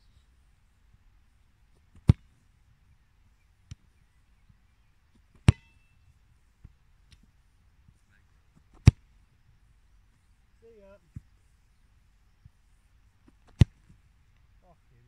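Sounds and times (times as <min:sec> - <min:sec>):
ball ringing ping: 0:05.5 - 0:05.9.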